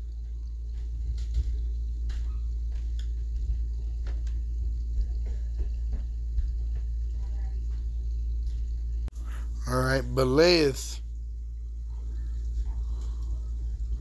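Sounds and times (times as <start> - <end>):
low room hum: 0.0 - 14.0
faint clicks and taps: 0.1 - 8.8.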